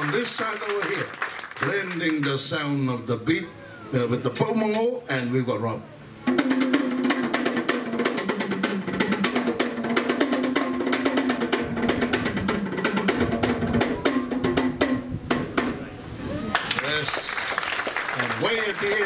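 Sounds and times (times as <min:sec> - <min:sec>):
slit drums and skin drums: 0:06.2 - 0:17.3
deep drum: 0:06.3 - 0:15.9.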